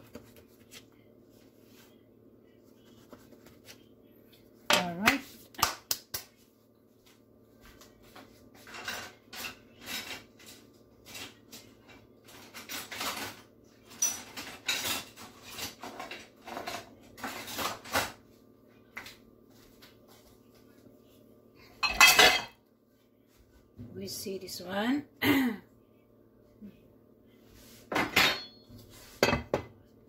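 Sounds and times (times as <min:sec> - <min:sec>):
faint steady hum: 0:00.0 - 0:12.4
utensils clinking on dishes: 0:08.6 - 0:18.1, 0:21.8 - 0:22.6, 0:27.9 - 0:29.6.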